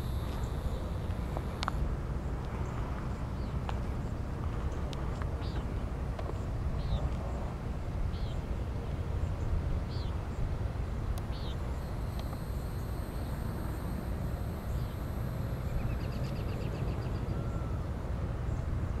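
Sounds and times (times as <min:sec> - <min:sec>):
cicada buzzing: 0:00.0 - 0:01.9, 0:11.3 - 0:17.2.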